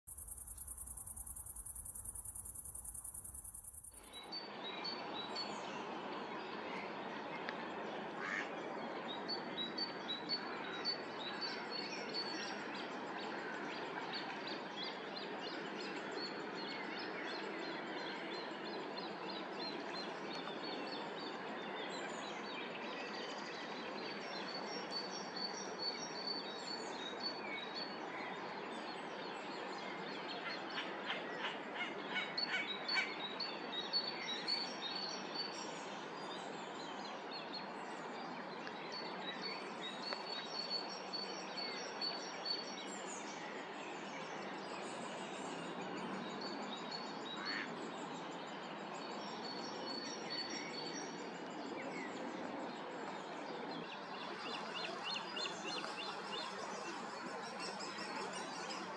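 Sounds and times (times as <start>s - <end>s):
steady background hiss: 0.1s - 58.9s
small birds chirping and singing: 33.9s - 58.9s.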